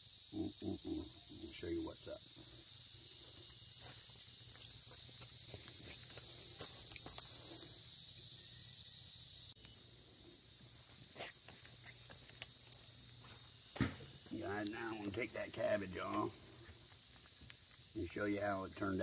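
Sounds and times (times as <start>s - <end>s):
high-pitched insect chorus: 0.0s - 19.0s
footsteps: 2.3s - 7.8s, 10.6s - 18.1s.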